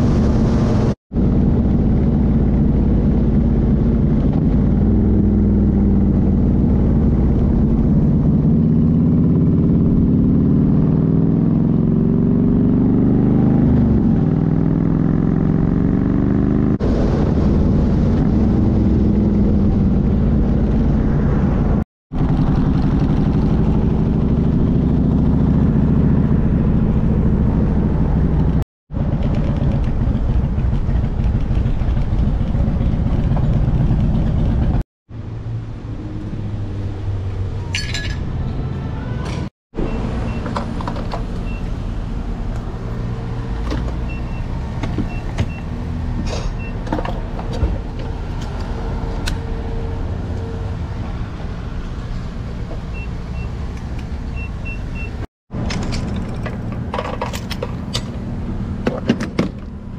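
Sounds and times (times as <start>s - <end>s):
motorcycle engine running: 1.1s - 16.8s, 22.1s - 34.8s
riding wind rushing: 16.6s - 34.8s.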